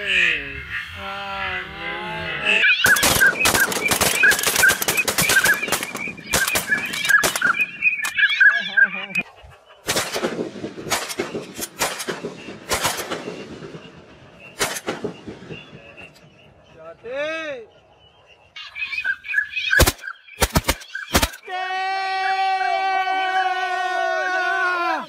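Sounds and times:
wavering bird call: 0.0 - 9.9, 17.6 - 21.7
short repeated bird calls: 0.0 - 10.0, 11.0 - 21.5
shotgun volleys: 2.9 - 7.8, 9.8 - 16.0, 19.8 - 21.4.

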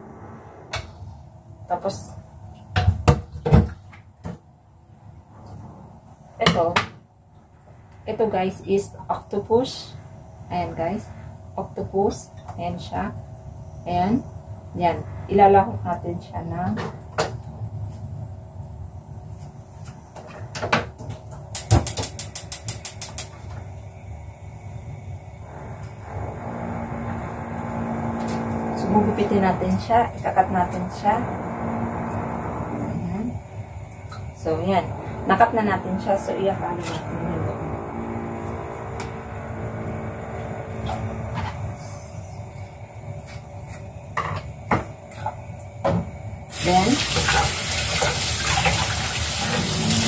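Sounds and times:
low steady hum: 23.3 - 47.0.

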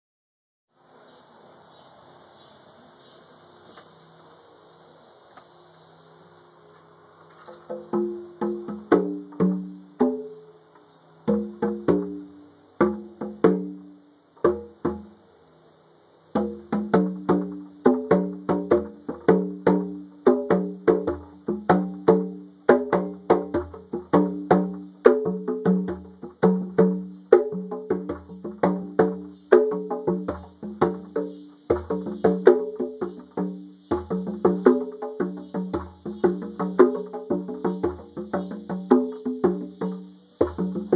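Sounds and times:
cicadas buzzing: 0.8 - 40.9
conga drums played by hand: 7.4 - 10.5, 11.2 - 15.2, 16.3 - 40.9.

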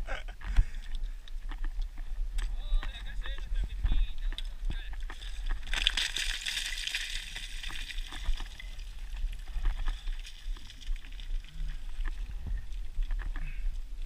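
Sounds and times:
footsteps on scree: 1.4 - 13.6
small stones clattering: 2.4 - 13.4.

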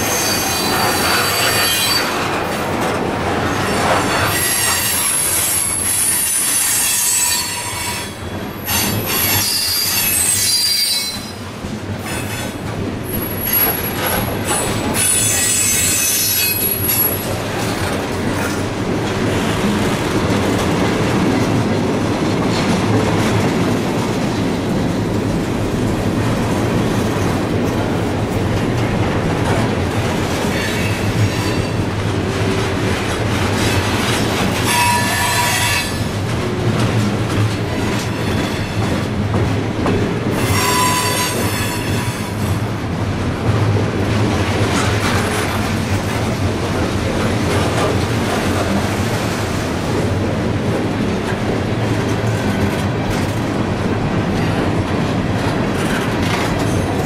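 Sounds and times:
train wheels squealing: 0.0 - 2.3, 4.0 - 11.4, 12.0 - 17.3, 34.6 - 36.0, 38.1 - 39.1, 40.4 - 42.6
freight cars rumbling and clattering: 0.0 - 5.8, 16.6 - 34.7, 36.0 - 40.5, 41.4 - 57.0.

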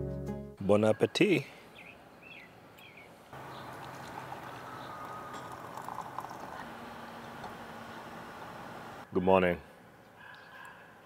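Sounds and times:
water boiling: 3.4 - 9.0.

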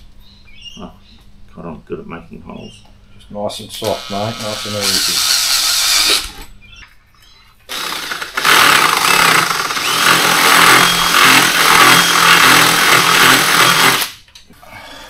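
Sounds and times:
cordless drill boring: 3.8 - 6.3, 7.7 - 14.2
loud power tool running: 3.8 - 6.4, 7.7 - 14.2.

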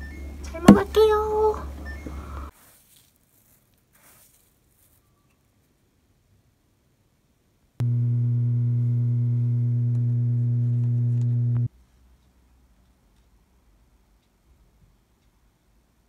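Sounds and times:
loud steady low hum: 7.8 - 11.7.

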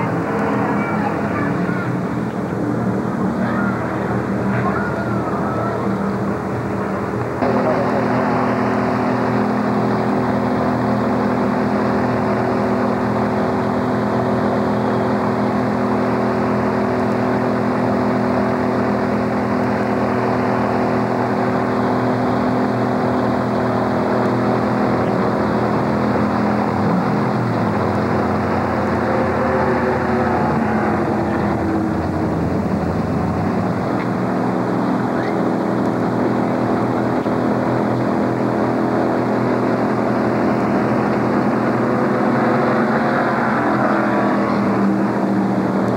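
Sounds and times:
race car engines droning: 0.0 - 45.9.

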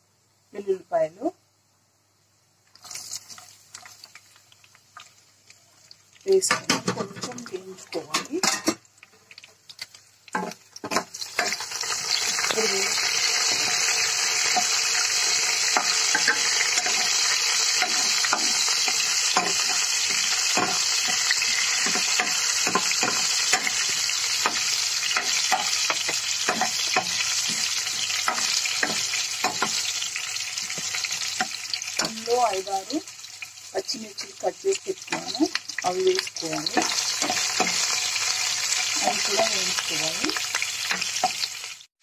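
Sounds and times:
spices frying in hot oil: 2.0 - 42.0
spatula stirring in pan: 9.3 - 32.2, 36.5 - 38.3.

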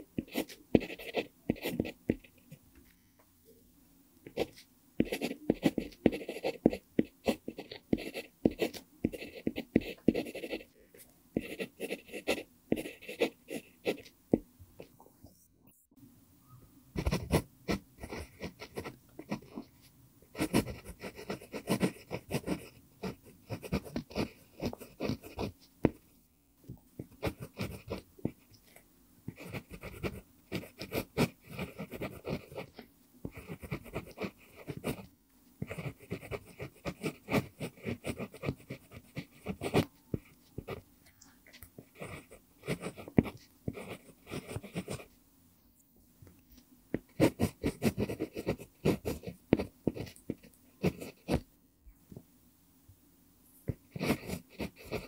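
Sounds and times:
pencil scratching on paper: 0.0 - 2.5, 4.3 - 10.7, 11.4 - 14.1, 17.0 - 26.0, 27.0 - 28.5, 29.3 - 40.8, 41.8 - 45.1, 46.9 - 51.4, 53.7 - 55.0.

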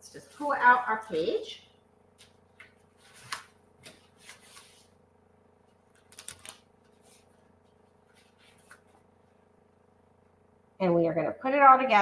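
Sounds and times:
paper pages rustling: 2.2 - 5.0, 5.7 - 9.2.

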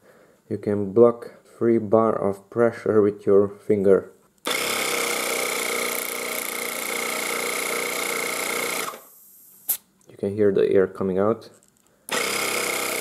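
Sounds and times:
air compressor buzzing with whine: 4.5 - 9.8, 12.1 - 13.0.

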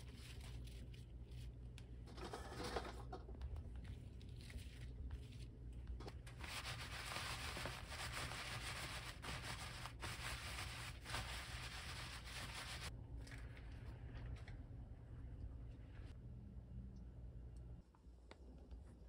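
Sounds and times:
paper towel rustling: 0.0 - 3.2, 3.8 - 12.9.

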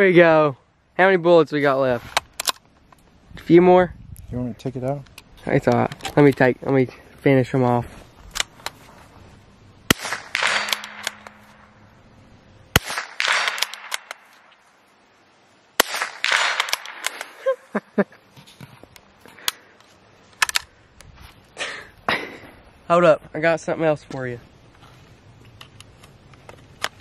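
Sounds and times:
gunshots with echo: 9.9 - 11.8, 12.7 - 14.2, 15.8 - 17.1.

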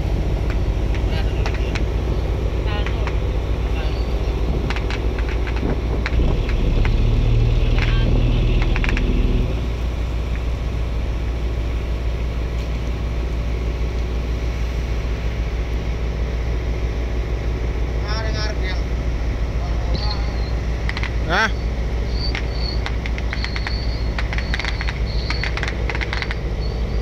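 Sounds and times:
boat engine droning: 0.0 - 27.0
water noise: 0.0 - 27.0
wind: 0.0 - 27.0
sharp cracks: 4.7 - 7.0, 20.8 - 21.2, 22.3 - 26.5.

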